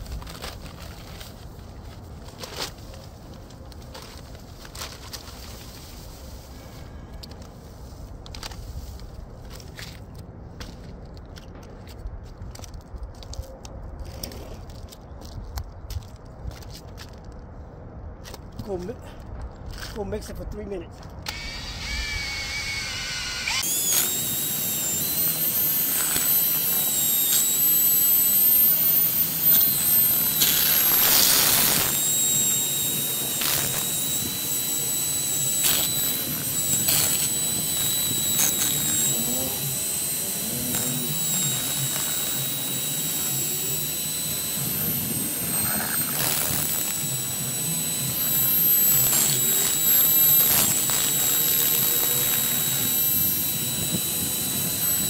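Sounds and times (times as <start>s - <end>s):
electric drill mixing paddle whine: 21.2s - 55.0s.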